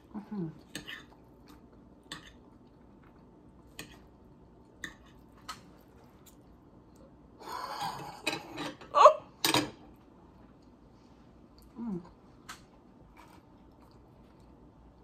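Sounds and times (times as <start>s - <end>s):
person chewing: 13.0s - 15.0s.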